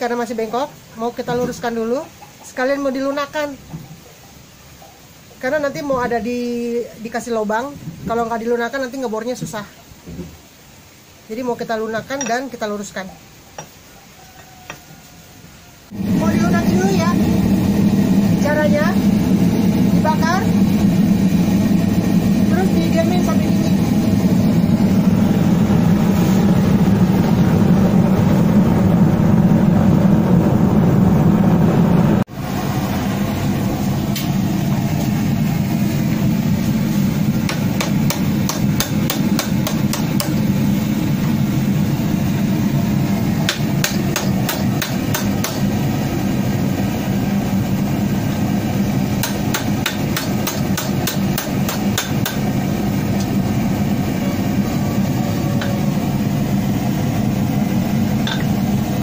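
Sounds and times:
hammer striking hot metal: 37.4 - 40.5, 43.4 - 45.7, 49.2 - 52.6, 58.2 - 58.6.

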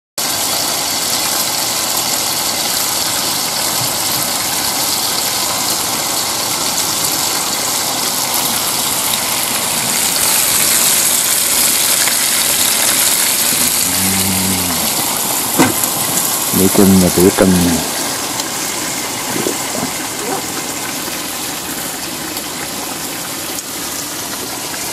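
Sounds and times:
bacon sizzling in a frying pan: 0.2 - 24.9
rain falling: 0.2 - 24.9.

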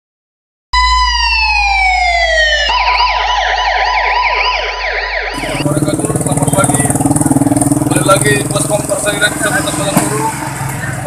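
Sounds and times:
police siren wailing and yelping: 0.8 - 7.2.

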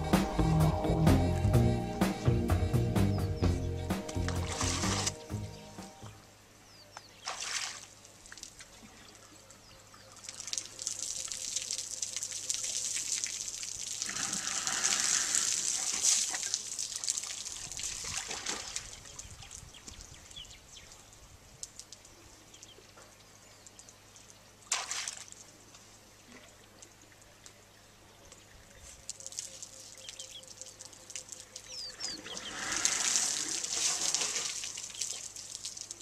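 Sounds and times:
water splashing and trickling: 3.8 - 6.3, 7.1 - 20.4, 23.6 - 27.7, 28.7 - 36.0.

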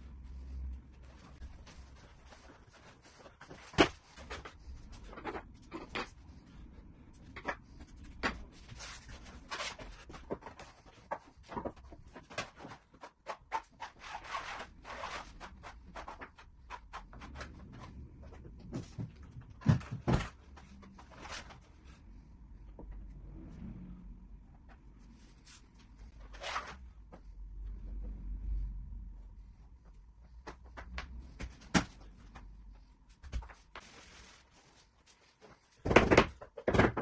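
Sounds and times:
knocks and clicks on vinyl floor: 35.8 - 37.0.

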